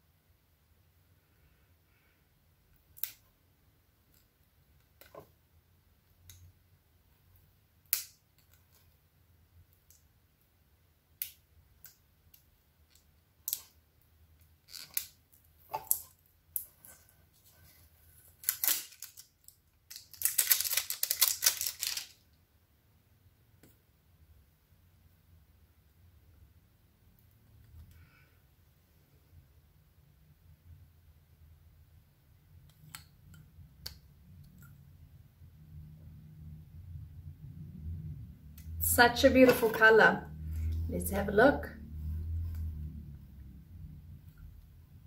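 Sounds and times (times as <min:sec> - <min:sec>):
packaging rustling and crackling: 0:18.2 - 0:22.2.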